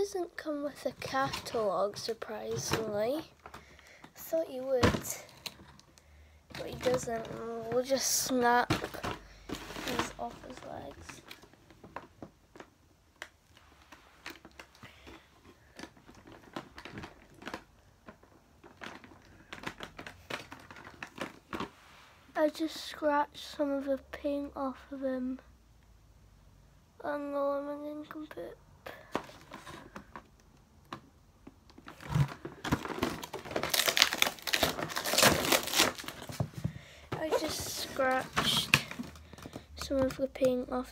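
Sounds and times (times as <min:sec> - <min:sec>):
plastic and cardboard crinkling: 0:00.1 - 0:21.8, 0:28.9 - 0:40.9
packaging thump: 0:31.8 - 0:40.1.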